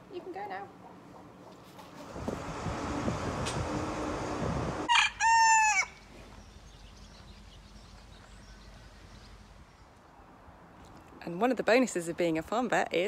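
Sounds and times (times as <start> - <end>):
rustling noise: 1.5 - 3.9
rooster crowing: 4.8 - 6.0.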